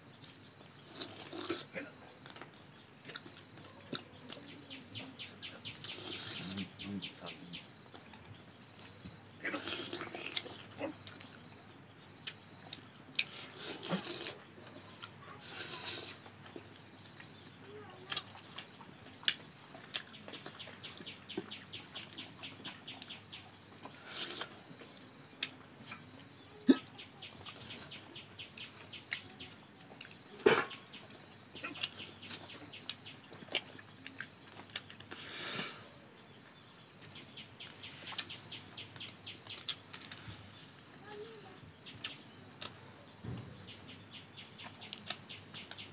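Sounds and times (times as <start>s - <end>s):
chewing and lip smacks: 18.1s - 23.2s, 31.6s - 35.2s.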